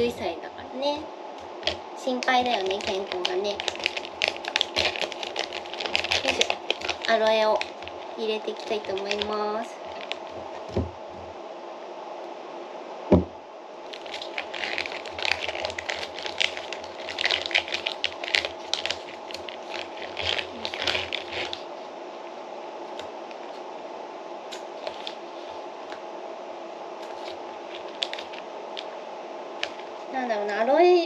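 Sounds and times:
steady low hum: 0.0 - 31.0
plastic pouch crinkling: 1.6 - 10.8, 13.9 - 21.7, 24.5 - 25.6, 27.0 - 29.0, 29.6 - 30.0.

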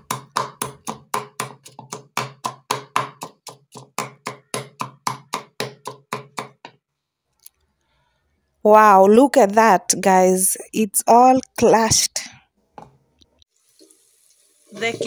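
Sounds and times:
pestle pounding in a mortar: 0.0 - 6.8.

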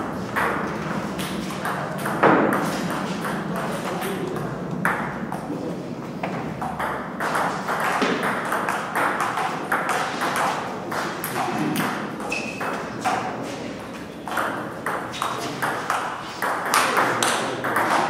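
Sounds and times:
table tennis ball knocks: 1.2 - 5.4, 6.2 - 13.3.

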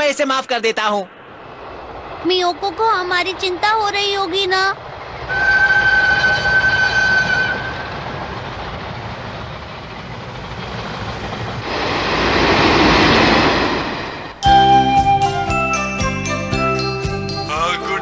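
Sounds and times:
train rumble: 0.0 - 18.0
rushing noise: 0.6 - 15.5
train horn: 5.3 - 8.0.

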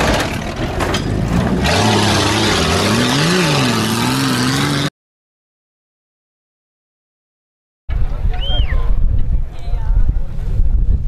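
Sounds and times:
car engine revving: 0.0 - 4.9.

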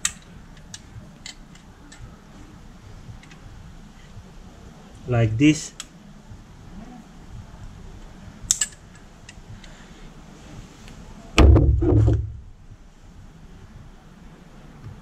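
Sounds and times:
pliers clicking on spring clamp: 8.5 - 9.4
loud thud with deep rumble: 11.4 - 12.6.

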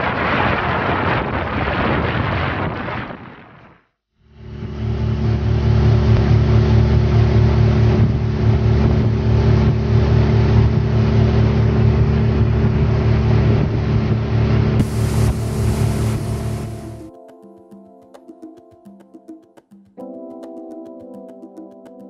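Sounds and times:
outboard motor drone: 4.3 - 17.1
hull rushing through water: 4.7 - 17.1.

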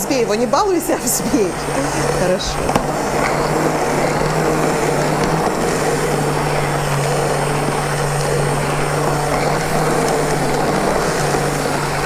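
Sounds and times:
hand blender running: 0.0 - 12.0.

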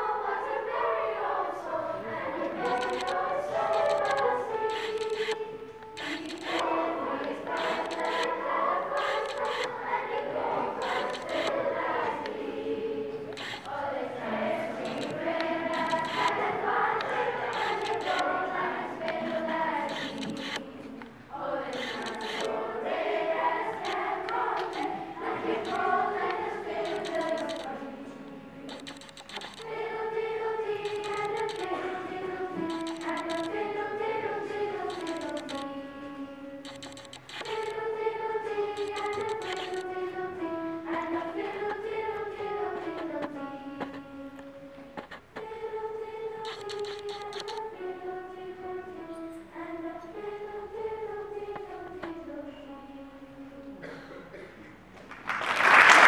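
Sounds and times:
children's choir singing: 0.0 - 56.0
hand clapping: 55.0 - 56.0.

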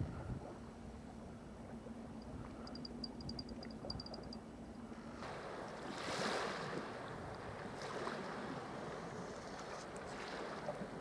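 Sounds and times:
small waves washing: 5.0 - 11.0.

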